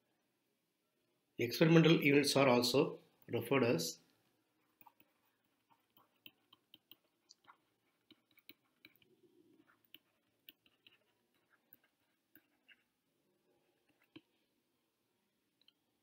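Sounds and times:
stylus tapping tablet screen: 4.6s - 12.9s.

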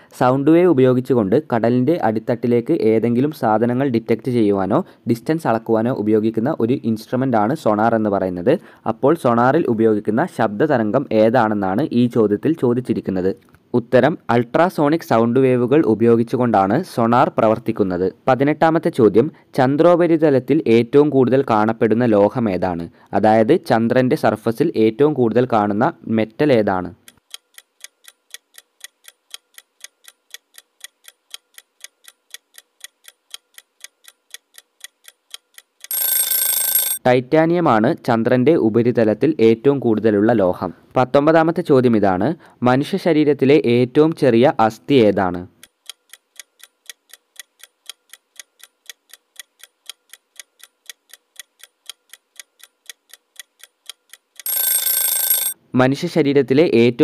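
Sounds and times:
clock ticking: 27.0s - 37.0s, 45.5s - 55.6s.

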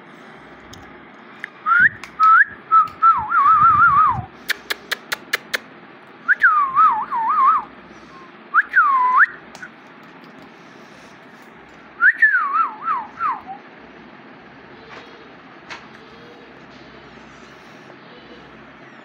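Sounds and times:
person whistling: 1.7s - 4.3s, 6.3s - 9.4s, 12.0s - 13.6s
sharp clicks: 4.4s - 5.7s.

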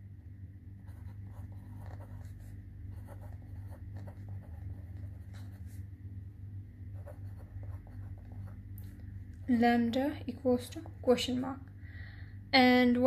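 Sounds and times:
steady low hum: 0.0s - 13.0s
pen writing on paper: 0.9s - 5.6s, 7.0s - 8.6s.

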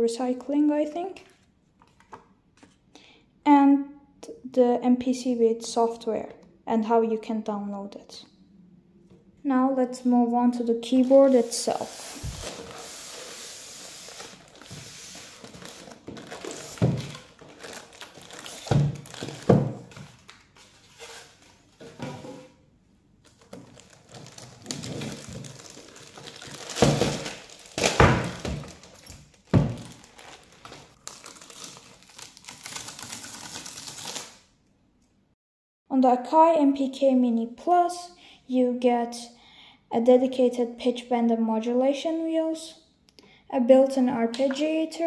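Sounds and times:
plastic wrapping rustling: 10.9s - 22.0s, 23.2s - 34.4s.

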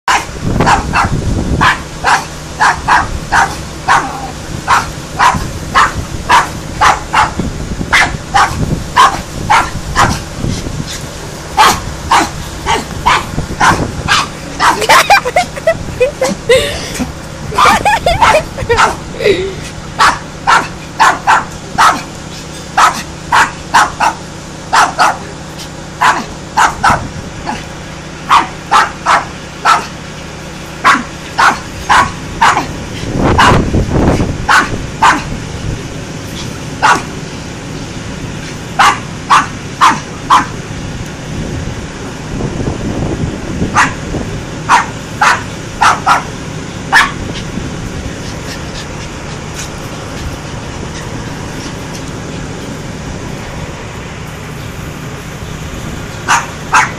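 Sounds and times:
dog barking: 0.1s - 10.2s, 11.6s - 15.2s, 17.6s - 19.0s, 20.0s - 22.1s, 22.8s - 25.3s, 26.0s - 27.6s, 28.3s - 29.9s, 30.8s - 32.7s, 33.4s - 33.6s, 34.5s - 35.3s, 36.8s - 37.1s, 38.8s - 40.6s, 43.7s - 44.0s, 44.7s - 46.3s, 46.9s - 47.2s, 56.3s - 56.9s.

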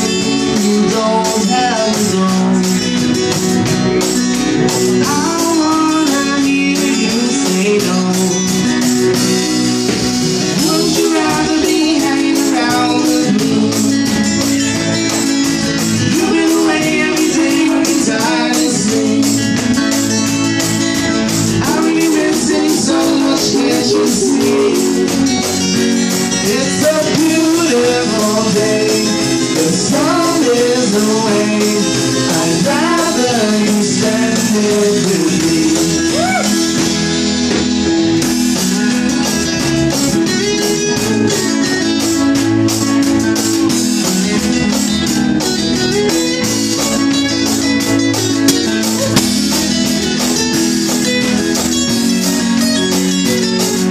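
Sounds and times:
man singing: 0.0s - 3.3s, 4.8s - 9.1s, 10.5s - 15.1s, 15.8s - 20.1s, 21.3s - 37.0s
drum kit: 0.0s - 53.9s
strummed acoustic guitars: 0.0s - 53.9s.

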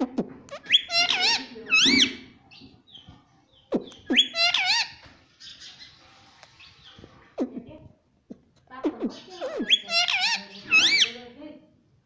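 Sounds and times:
parakeet whistling calls: 0.5s - 2.2s, 4.0s - 5.8s, 9.1s - 11.2s.

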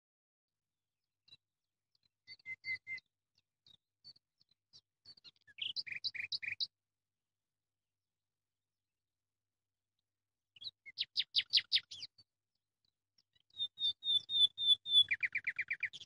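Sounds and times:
bird chirping: 1.3s - 6.7s, 10.6s - 12.3s, 13.2s - 16.0s.

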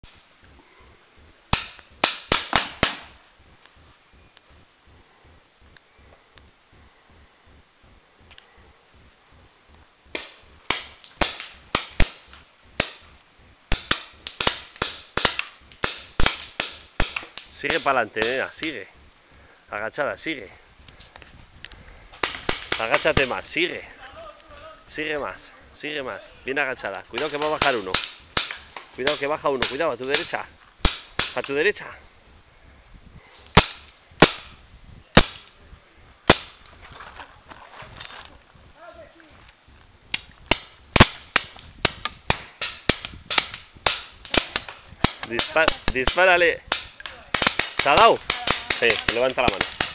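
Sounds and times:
paintball marker firing pops: 1.5s - 3.2s, 40.1s - 49.9s
paintball markers firing: 13.7s - 18.4s, 22.2s - 23.4s, 27.2s - 31.5s, 40.2s - 49.9s.

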